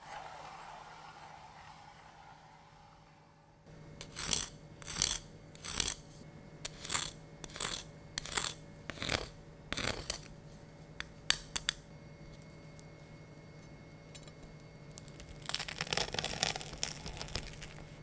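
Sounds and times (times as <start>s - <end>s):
pepper mill grinding: 4.0s - 6.0s, 6.6s - 10.3s, 15.0s - 17.9s.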